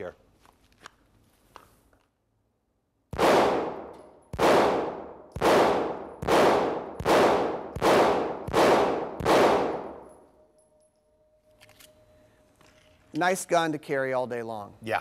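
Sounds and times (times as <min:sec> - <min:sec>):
pistol shots echoing indoors: 0:03.0 - 0:12.2.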